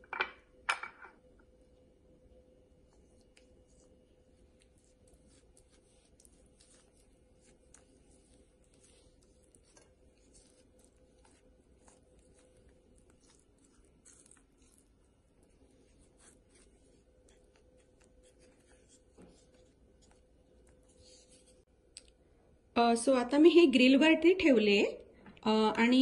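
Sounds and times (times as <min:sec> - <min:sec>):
faint steady hum: 0:00.0 - 0:26.0
pastry brush dabbing meat: 0:02.3 - 0:21.7.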